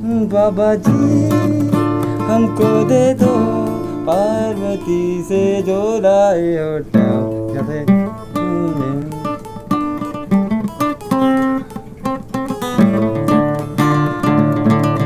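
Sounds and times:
acoustic guitars playing: 0.0s - 15.0s.

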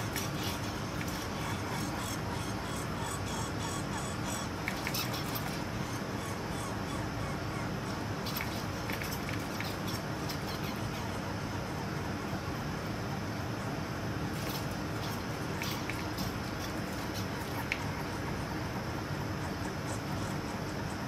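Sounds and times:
squirrels scratching and clicking: 0.0s - 2.5s, 4.6s - 5.8s, 8.2s - 11.2s, 14.3s - 18.4s.

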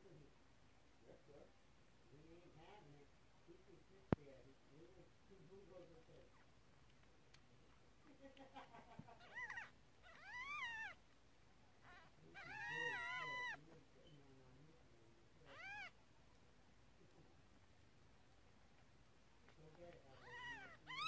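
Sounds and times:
kittens mewing: 9.0s - 11.0s, 11.8s - 13.6s, 15.4s - 16.0s, 20.0s - 21.0s.

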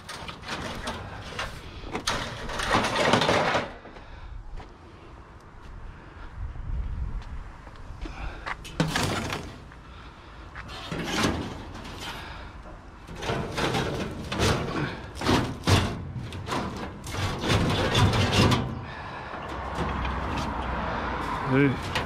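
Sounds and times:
scrap dropped with clatters: 0.0s - 3.8s, 8.7s - 9.6s, 10.7s - 12.3s, 13.1s - 18.8s.

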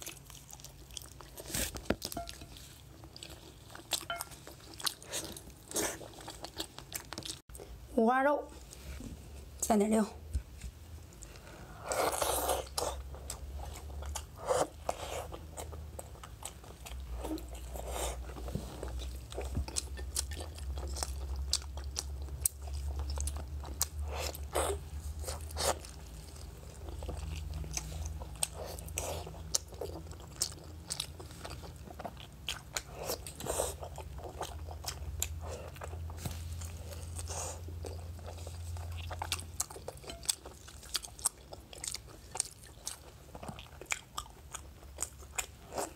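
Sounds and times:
crunchy pork belly chewing: 0.0s - 7.4s, 11.9s - 45.9s.

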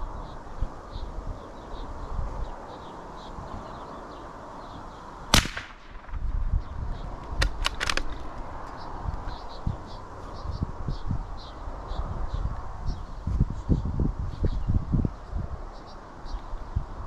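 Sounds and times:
rifle shot: 5.3s - 6.5s
rifle bolt metallic clicks: 5.4s - 6.2s, 7.4s - 8.3s.

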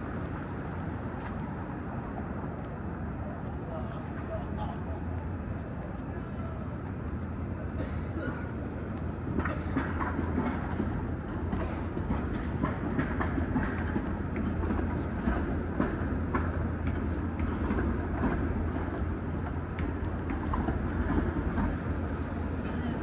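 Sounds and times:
low street rumble: 0.0s - 23.0s.

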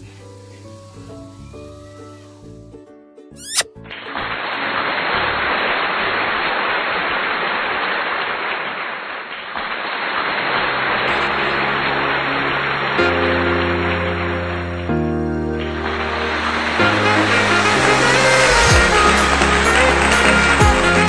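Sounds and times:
food sizzling in a hot pan: 0.0s - 2.5s
faint music: 0.0s - 5.0s.

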